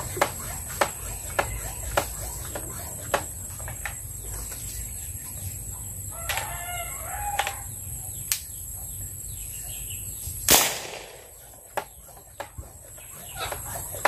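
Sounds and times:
rooster crowing: 6.1 - 7.8
marble gun firing crack: 10.5 - 11.9.

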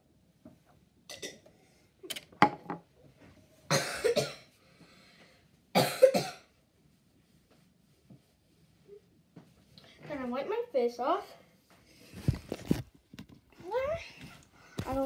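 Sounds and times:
person coughing: 3.7 - 4.5, 5.8 - 6.5.

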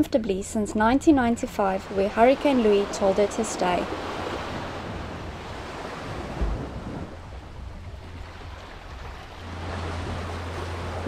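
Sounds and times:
wind rumbling on microphone: 0.8 - 11.0
surf washing onto beach: 1.8 - 11.0
low gust thump: 3.9 - 11.0.

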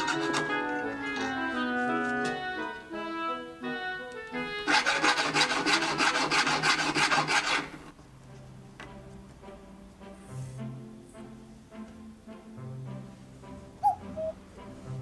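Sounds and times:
background music: 0.0 - 15.0
hand file rasping on metal ring: 4.7 - 7.8.

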